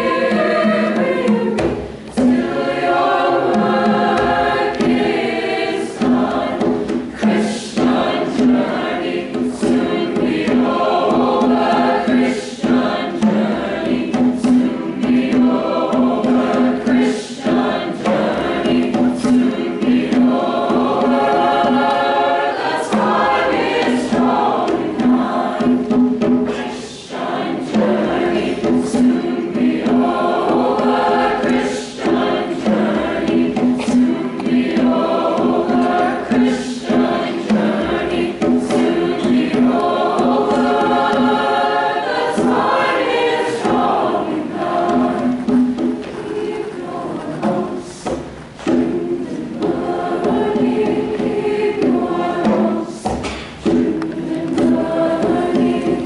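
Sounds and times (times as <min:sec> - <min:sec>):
choir singing: 0:00.0 - 0:56.0.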